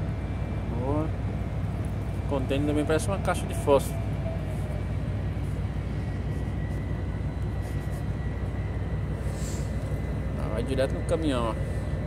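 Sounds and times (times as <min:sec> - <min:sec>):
low machinery drone: 0:00.0 - 0:12.0
thin high whine: 0:02.4 - 0:12.0.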